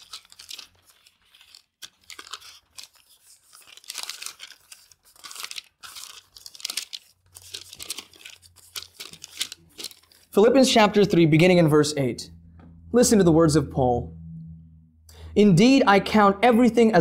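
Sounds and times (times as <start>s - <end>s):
thin pages rustling: 0.0s - 10.3s.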